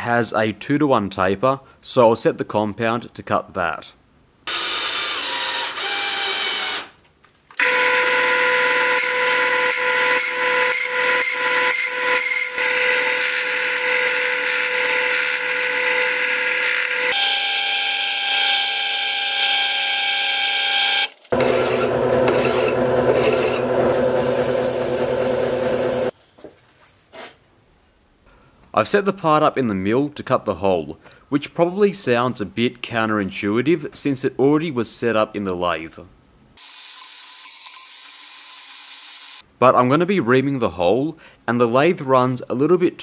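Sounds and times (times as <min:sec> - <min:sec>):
metal lathe cutting whine: 0:21.4 - 0:26.1.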